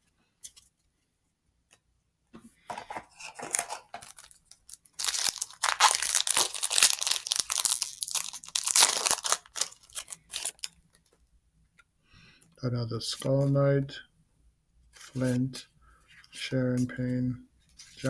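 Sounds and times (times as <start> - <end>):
foil wrapper tearing and crinkling: 3.3 - 10.8.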